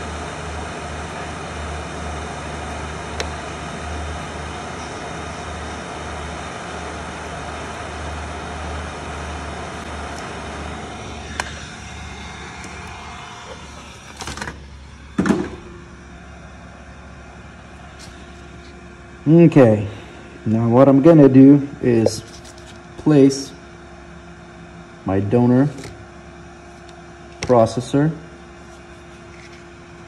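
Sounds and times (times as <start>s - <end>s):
hot air blowing: 0.0s - 23.8s.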